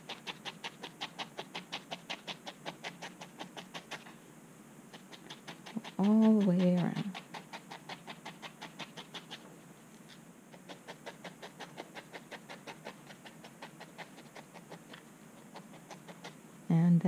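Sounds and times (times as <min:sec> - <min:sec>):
felting needle poking wool: 0:05.0 - 0:09.4.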